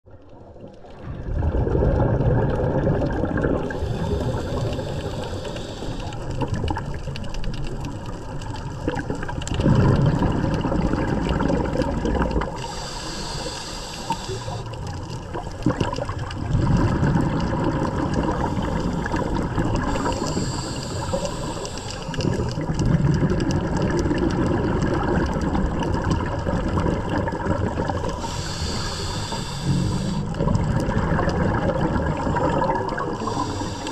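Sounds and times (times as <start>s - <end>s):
exhaled bubbles rumbling: 0.1s - 33.9s
regulator inhale hiss: 3.8s - 6.5s, 12.6s - 15.0s, 18.3s - 22.6s, 28.0s - 30.4s, 33.1s - 33.9s.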